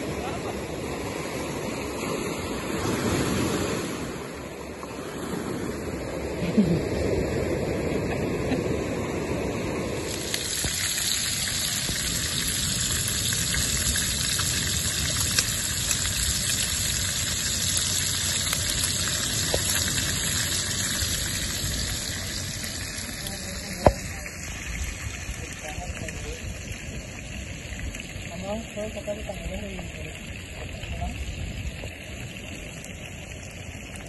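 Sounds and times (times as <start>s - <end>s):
surf washing on shore: 0.0s - 34.0s
fish frying in a pan: 10.0s - 34.0s.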